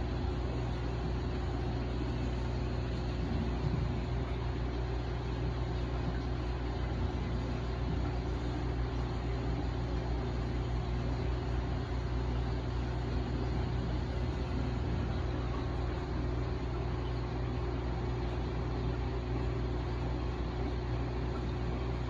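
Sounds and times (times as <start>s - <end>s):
aquarium pumps humming: 0.0s - 22.0s
water circulating: 0.0s - 22.0s.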